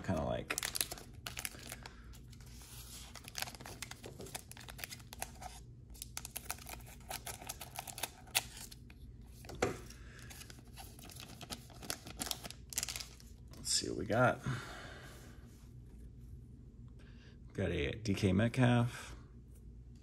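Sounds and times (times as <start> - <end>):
foil pack crinkling: 0.1 - 8.8, 10.2 - 13.2.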